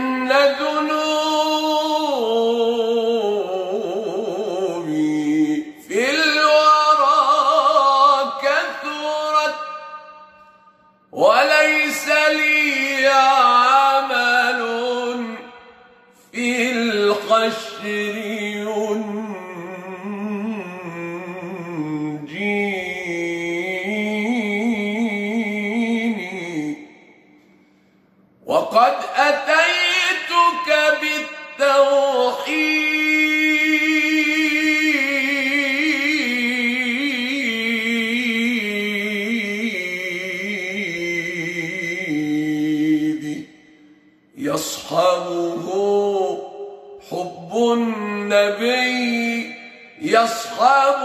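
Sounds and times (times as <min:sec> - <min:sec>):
man singing unaccompanied: 0:00.0 - 0:27.2, 0:28.5 - 0:51.0
man chanting: 0:00.0 - 0:27.3, 0:28.4 - 0:51.0
breath: 0:27.4 - 0:28.4.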